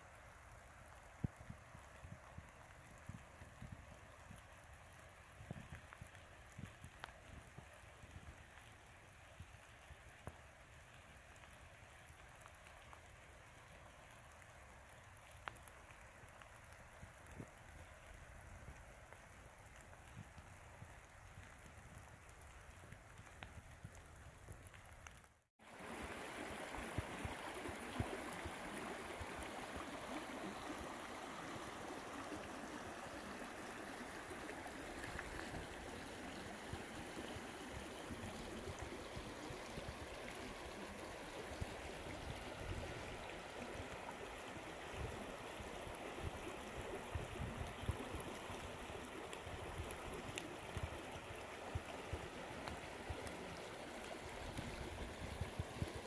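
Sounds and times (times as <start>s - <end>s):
creek water rushing: 25.6s - 56.0s.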